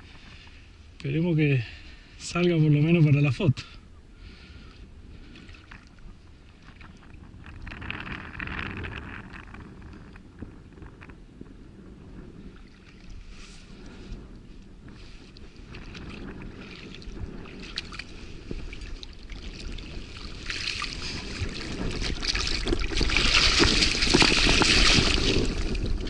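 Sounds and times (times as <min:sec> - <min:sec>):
fish splashing in shallow water: 0:15.2 - 0:26.0.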